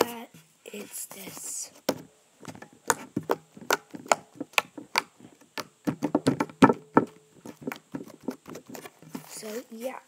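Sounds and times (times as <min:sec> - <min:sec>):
slime clicking and popping: 0:02.8 - 0:08.6.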